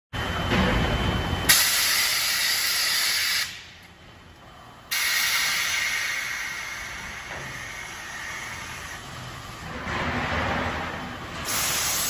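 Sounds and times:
compressed air hissing: 4.9s - 9.0s, 11.4s - 12.0s.

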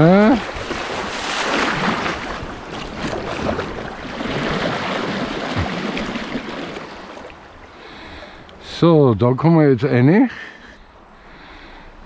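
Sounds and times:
paddle strokes splashing: 0.0s - 8.4s
water rushing along hull: 0.0s - 9.4s.

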